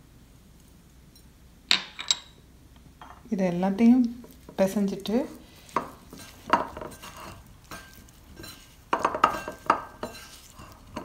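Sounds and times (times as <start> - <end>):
cheese cubes mixed by hand in bowl: 4.0 - 11.0.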